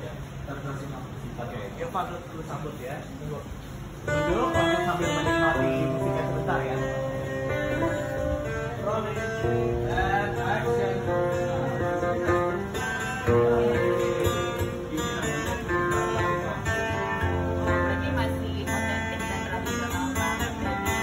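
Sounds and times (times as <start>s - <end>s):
acoustic guitar playing a tune: 3.8s - 21.0s.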